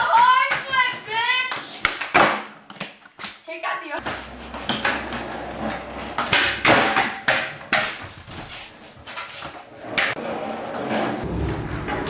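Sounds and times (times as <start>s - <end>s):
skateboard knocking and clattering: 0.0s - 2.9s, 4.0s - 12.0s
skateboard wheels rolling on concrete: 4.0s - 12.0s.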